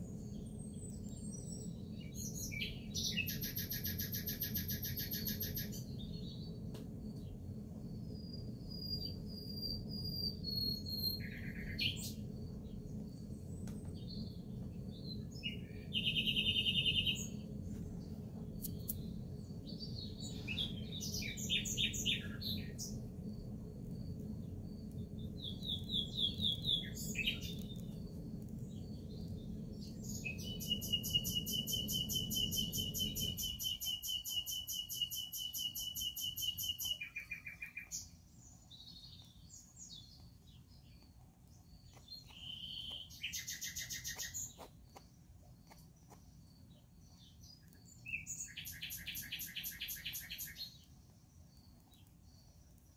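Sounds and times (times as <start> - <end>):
low steady hum: 0.0 - 36.0
songbirds chirping: 0.0 - 52.9.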